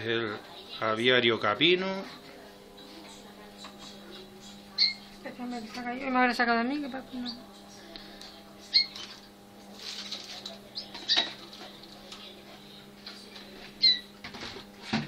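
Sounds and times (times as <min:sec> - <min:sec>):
steady low hum: 0:00.0 - 0:15.0
canaries calling: 0:03.8 - 0:05.1, 0:08.6 - 0:09.2, 0:10.7 - 0:11.4, 0:13.8 - 0:14.1
scratching and fluttering: 0:07.6 - 0:14.8.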